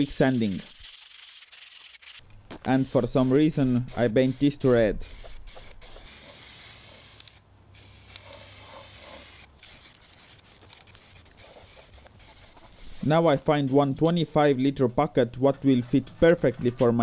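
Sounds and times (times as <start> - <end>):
spray-paint can hissing: 0.4 - 2.2, 2.8 - 13.2.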